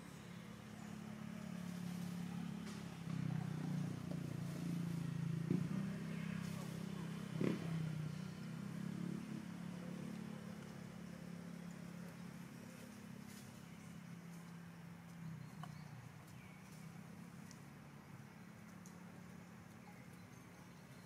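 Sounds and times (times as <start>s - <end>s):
motor engine running: 0.0s - 19.8s.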